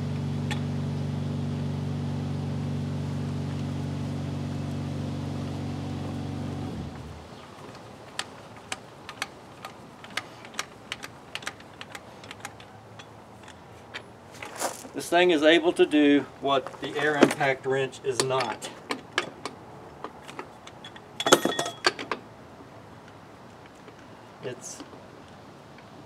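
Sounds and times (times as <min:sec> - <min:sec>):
light metal clicks and taps: 0:07.6 - 0:14.1.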